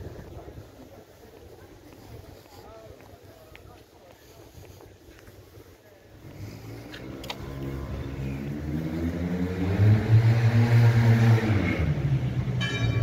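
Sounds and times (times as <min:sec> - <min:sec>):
vehicle engine passing by: 0:06.2 - 0:12.6.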